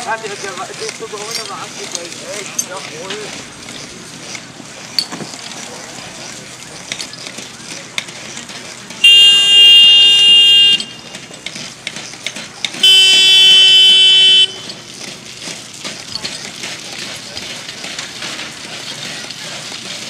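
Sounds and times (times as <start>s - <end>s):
loud horn blasts: 9.0s - 11.0s, 12.8s - 14.7s.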